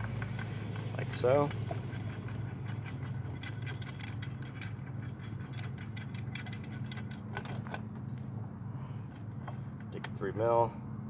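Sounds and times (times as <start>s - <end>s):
small metal clicks and rattling: 0.0s - 8.3s
steady low hum: 0.0s - 11.0s.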